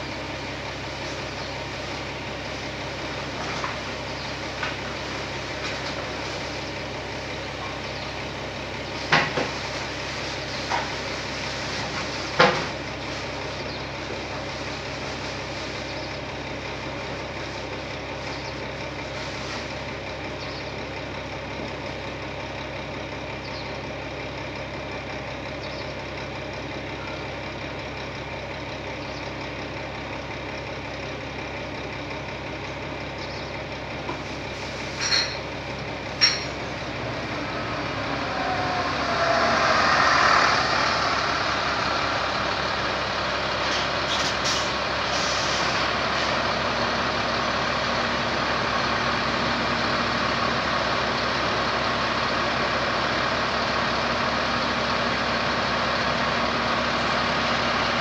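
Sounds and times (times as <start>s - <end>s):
heavy diesel engine running: 0.0s - 58.0s
hissing swell: 37.1s - 43.1s.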